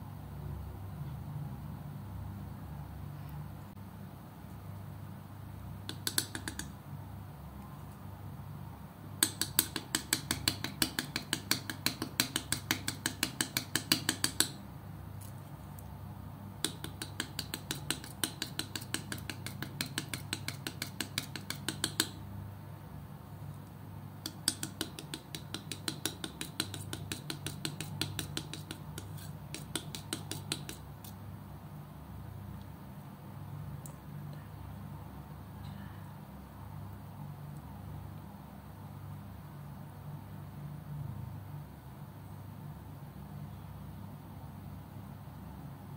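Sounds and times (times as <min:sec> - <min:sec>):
steady low hum: 0:00.0 - 0:45.9
palette knife mixing thick paint: 0:05.9 - 0:06.7, 0:09.2 - 0:14.6, 0:16.6 - 0:22.2, 0:24.2 - 0:31.2.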